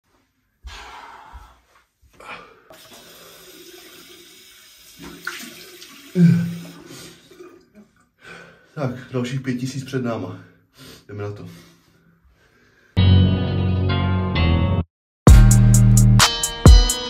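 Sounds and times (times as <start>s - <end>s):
man splashing water on face: 2.7s - 8.1s
man blowing out loudly: 6.0s - 7.2s.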